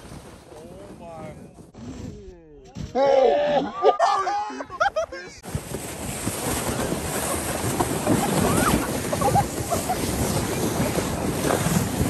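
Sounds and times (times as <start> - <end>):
wind buffeting microphone: 4.8 - 12.0.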